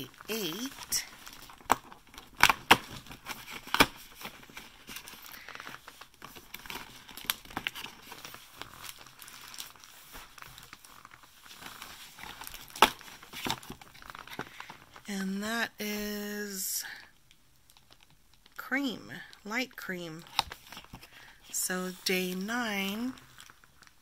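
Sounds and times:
cardboard crinkling and scraping: 0.1s - 15.0s, 20.2s - 24.0s.

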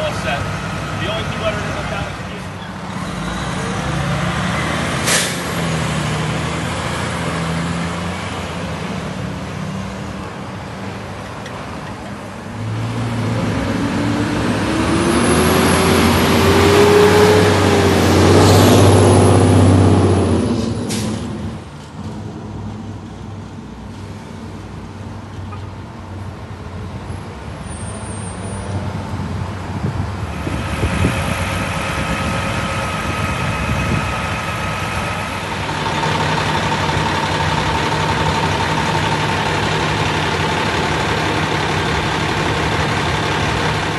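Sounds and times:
truck engine revving: 0.0s - 22.3s, 30.3s - 43.9s
fire truck engines running: 0.0s - 43.9s
air-brake hiss: 5.0s - 5.5s.

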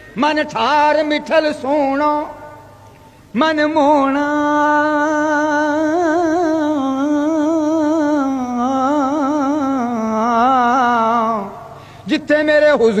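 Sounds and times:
man singing a long note: 3.3s - 13.0s.

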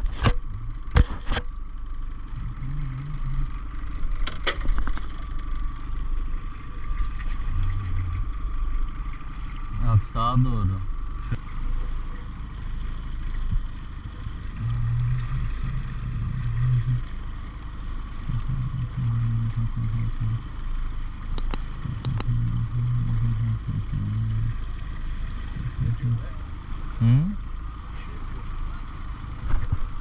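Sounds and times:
sharp clicks: 21.4s - 22.3s.

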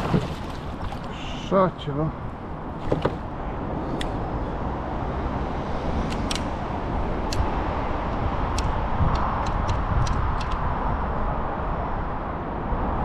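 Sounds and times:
road traffic rumble: 0.0s - 13.0s
sharp light clicks: 6.1s - 6.5s, 7.3s - 7.5s, 8.5s - 10.6s.

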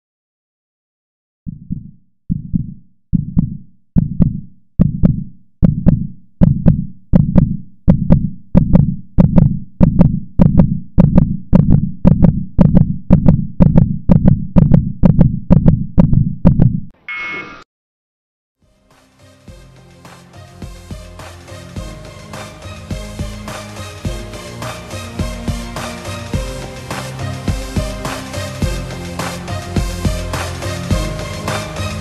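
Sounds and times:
heartbeat thumps: 1.5s - 16.9s, 25.2s - 25.8s, 27.5s - 28.0s
short high beep: 17.1s - 17.6s.

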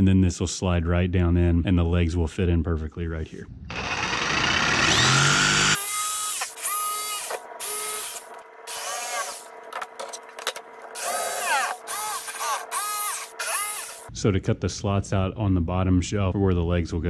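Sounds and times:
jigsaw cutting wood: 3.7s - 9.5s, 10.9s - 14.1s
short rising and falling whines: 3.7s - 9.7s.

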